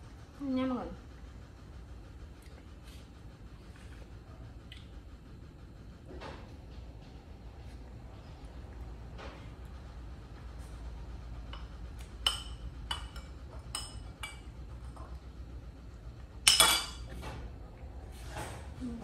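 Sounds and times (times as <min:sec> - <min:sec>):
tableware clinking: 0:16.4 - 0:17.2
tableware clattering: 0:16.4 - 0:17.4.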